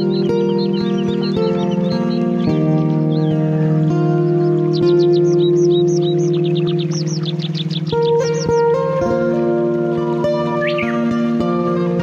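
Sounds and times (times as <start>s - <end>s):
calm new-age music with held chords: 0.0s - 12.0s
short bird-like chirp: 10.5s - 11.0s.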